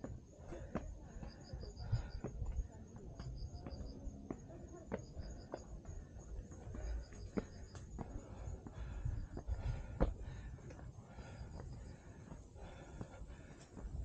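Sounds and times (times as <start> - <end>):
insect chirping: 0.0 - 14.0.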